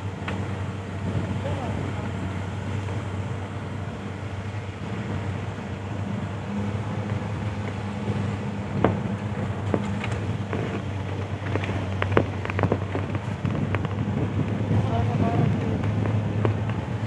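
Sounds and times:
vehicle engine and road hum: 0:00.0 - 0:17.0
knocks and rattles in cab: 0:07.0 - 0:17.0.

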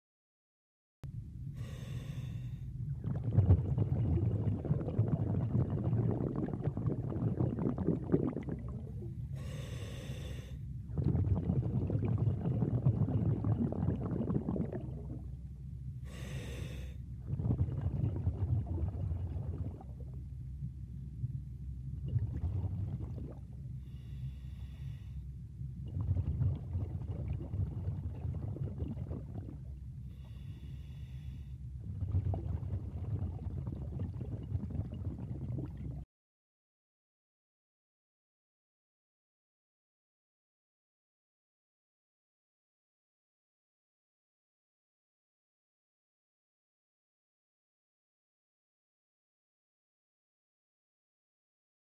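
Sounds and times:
diver exhaling with low rumble: 0:01.1 - 0:36.1
diver inhaling with a hiss: 0:01.5 - 0:02.8, 0:09.4 - 0:10.7, 0:16.0 - 0:17.0, 0:23.8 - 0:25.3, 0:30.1 - 0:31.6.

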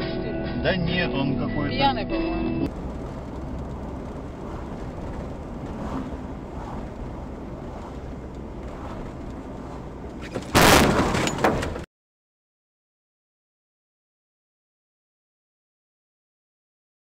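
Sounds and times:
car interior road noise: 0:02.6 - 0:11.8
bang: 0:10.2 - 0:11.9
car collision crash: 0:10.2 - 0:11.9.

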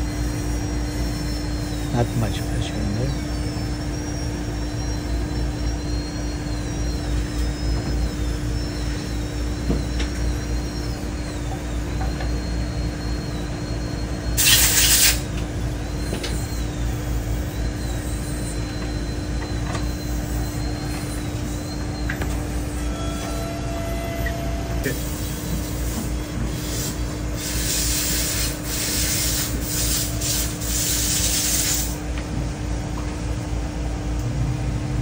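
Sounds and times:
faint high whines: 0:00.0 - 0:35.0
machinery humming: 0:00.0 - 0:35.0
hissing air burst: 0:14.4 - 0:15.2.

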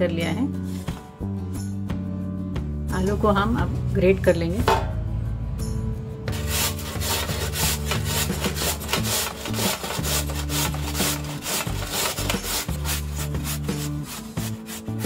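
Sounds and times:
potato rasping on a metal grater: 0:06.3 - 0:15.0.

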